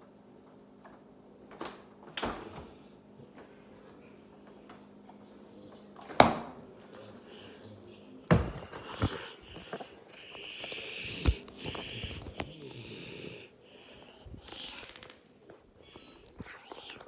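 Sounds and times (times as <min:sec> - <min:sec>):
child breathing and sniffing: 0:08.6 - 0:15.1.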